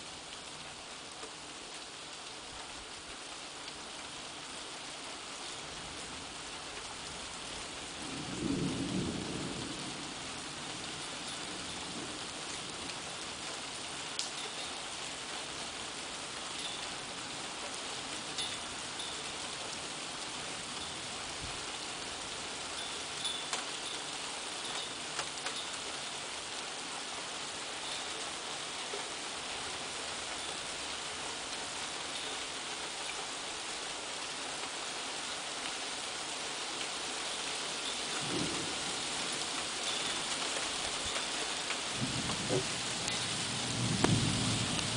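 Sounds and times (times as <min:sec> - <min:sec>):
steady rain: 0:00.0 - 0:44.9
thunder rumble: 0:41.9 - 0:44.9.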